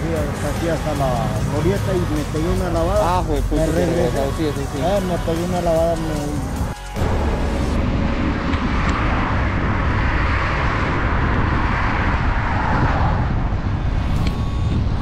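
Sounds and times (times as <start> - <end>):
road traffic noise: 0.0 - 15.0
wind buffeting microphone: 7.0 - 15.0.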